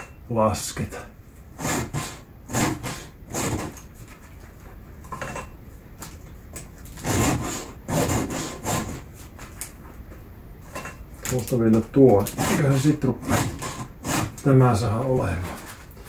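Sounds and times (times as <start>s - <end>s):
file rasping on chain teeth: 1.6s - 3.8s, 6.9s - 9.1s, 12.2s - 14.5s.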